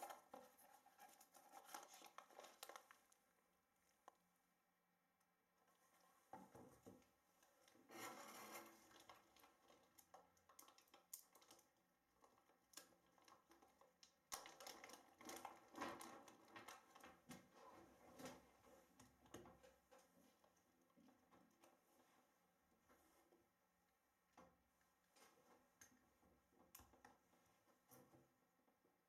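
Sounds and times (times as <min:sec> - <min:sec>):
plastic bag rustling and crinkling: 0:00.0 - 0:03.2
small clicks and rubbing: 0:00.0 - 0:03.4, 0:05.7 - 0:23.3.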